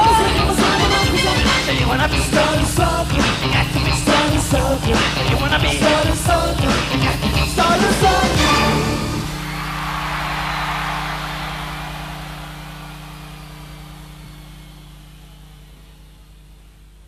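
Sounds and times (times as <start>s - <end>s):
live concert music: 0.0s - 14.7s
crowd cheering: 8.2s - 16.7s
low hum: 9.0s - 17.0s.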